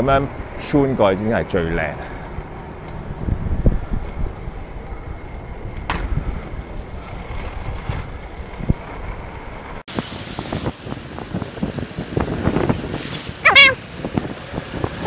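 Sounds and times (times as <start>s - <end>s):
skate wheels rolling on pavement: 0.0s - 15.0s
wind buffeting microphone: 0.0s - 15.0s.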